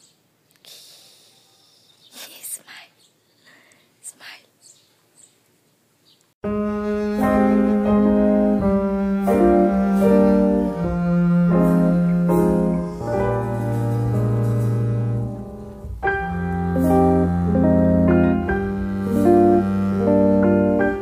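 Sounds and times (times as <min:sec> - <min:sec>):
background piano music: 0:06.4 - 0:21.0.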